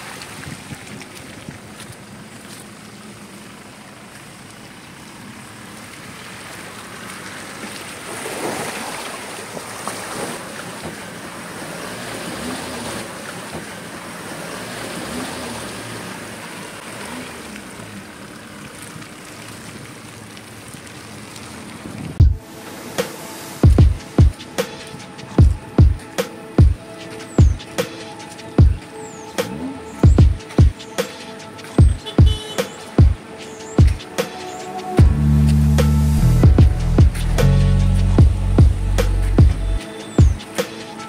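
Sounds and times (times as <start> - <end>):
wind buffeting microphone: 0.0 - 2.1
pickup truck engine running: 35.0 - 40.8.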